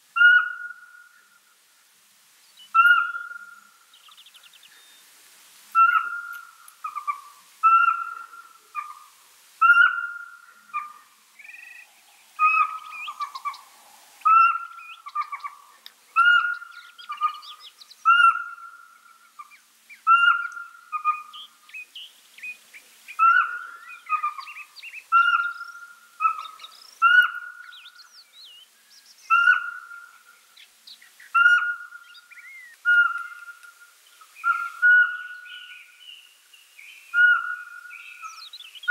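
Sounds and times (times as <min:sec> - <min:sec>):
owl piping whistles: 0:00.2 - 0:01.1, 0:02.8 - 0:03.6, 0:05.8 - 0:09.0, 0:09.6 - 0:15.6, 0:16.2 - 0:18.8, 0:20.0 - 0:21.5, 0:23.2 - 0:28.0, 0:29.3 - 0:30.1, 0:31.3 - 0:36.0, 0:37.1 - 0:38.9
small birds chirping: 0:02.3 - 0:38.9.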